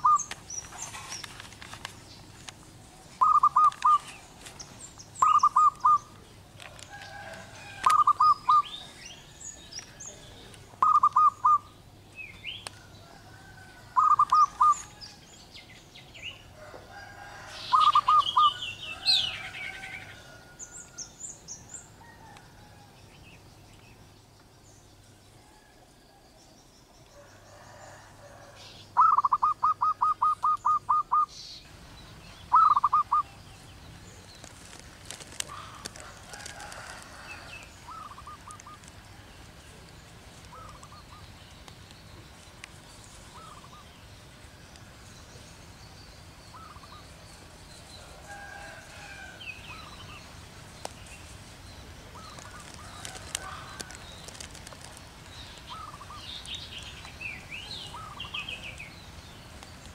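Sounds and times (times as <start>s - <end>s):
dove cooing: 0.0s - 1.2s, 3.0s - 4.3s, 5.2s - 12.0s, 12.8s - 15.0s, 16.4s - 20.6s, 27.2s - 31.3s, 32.5s - 33.4s, 35.2s - 39.8s, 40.4s - 41.3s, 52.0s - 55.0s, 55.6s - 56.3s
small birds chirping: 0.0s - 59.9s.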